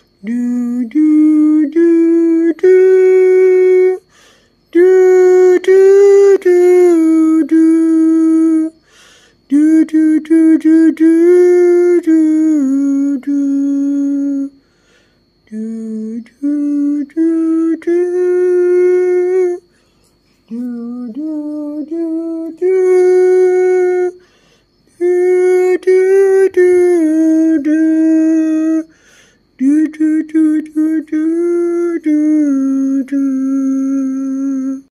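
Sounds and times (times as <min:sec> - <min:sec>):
person humming: 0:00.0 - 0:34.9.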